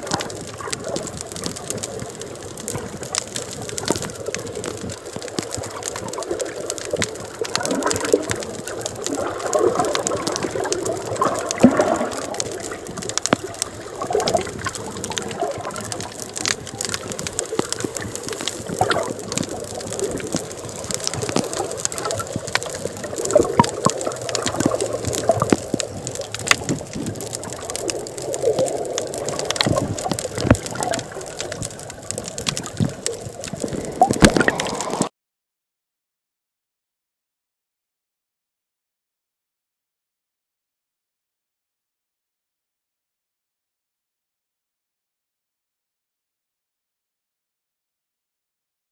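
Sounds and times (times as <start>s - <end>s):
underwater gurgling and sloshing: 0.0s - 35.1s
sharp clicks: 2.6s - 35.1s.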